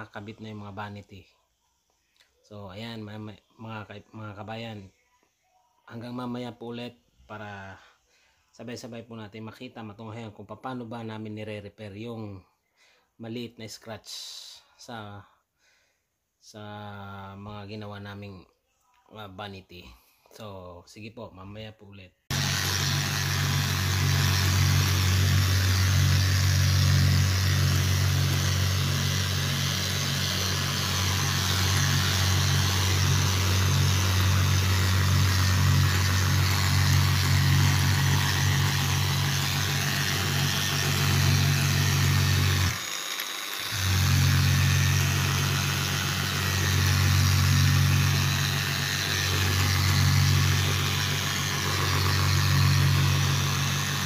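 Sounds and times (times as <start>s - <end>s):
orbital sander running: 22.3s - 54.0s.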